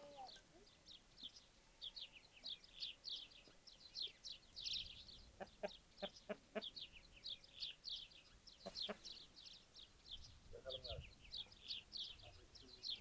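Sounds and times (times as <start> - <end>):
small birds chirping: 0.0 - 13.0
low clucking calls: 5.3 - 6.9, 8.6 - 9.2.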